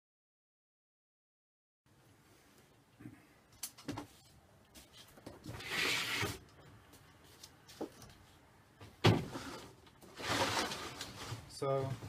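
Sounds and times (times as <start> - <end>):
plastic crates scraping: 9.1 - 11.9.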